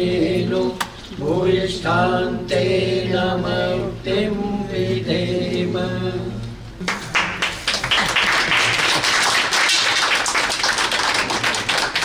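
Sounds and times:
group of people applauding: 0:06.8 - 0:12.0.

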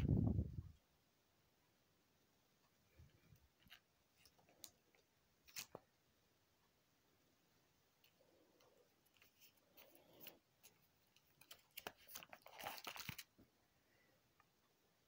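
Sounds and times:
plastic binder page crinkling: 0:05.4 - 0:05.8, 0:09.1 - 0:13.5.

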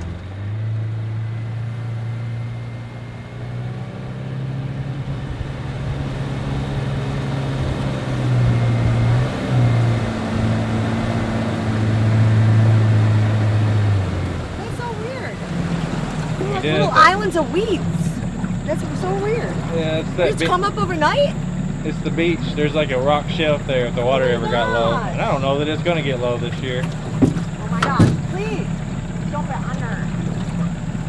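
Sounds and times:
outboard motor humming: 0:00.0 - 0:31.0.

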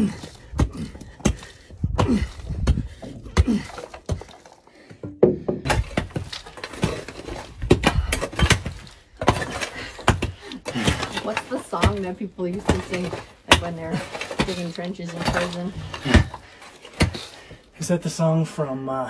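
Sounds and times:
digging tool striking rocky dirt: 0:05.6 - 0:17.4.

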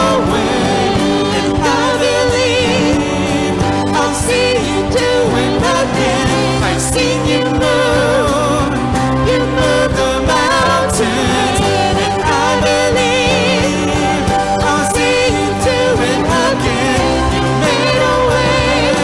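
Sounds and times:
electric guitar: 0:00.0 - 0:19.0
electric keyboard: 0:00.0 - 0:19.0
sung vocals: 0:00.0 - 0:19.0.

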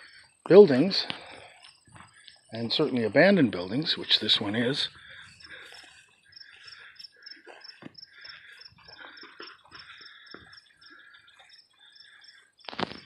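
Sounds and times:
crickets chirping: 0:00.0 - 0:13.0
footsteps on grass: 0:00.7 - 0:11.1.

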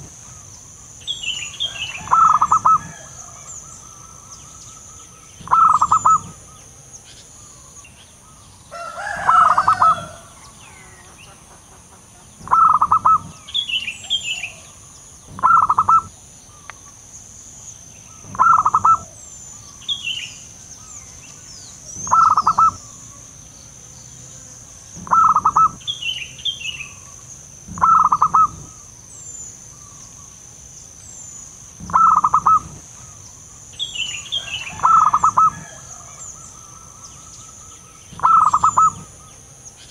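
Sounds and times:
small birds chirping: 0:00.0 - 0:39.9
dove cooing: 0:01.6 - 0:04.3, 0:05.4 - 0:06.6, 0:08.8 - 0:11.0, 0:12.4 - 0:16.1, 0:18.2 - 0:19.2, 0:21.9 - 0:23.0, 0:25.0 - 0:25.9, 0:27.7 - 0:28.8, 0:31.8 - 0:33.2, 0:34.4 - 0:37.0, 0:38.1 - 0:39.2.

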